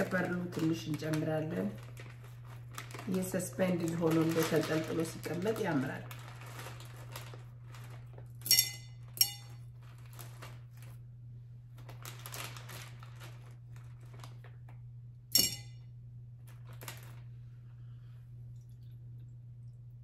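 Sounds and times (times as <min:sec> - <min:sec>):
plastic bag rustling: 0:00.0 - 0:15.6, 0:16.4 - 0:17.6
pearls clinking in glass vase: 0:08.4 - 0:09.6, 0:15.3 - 0:15.8.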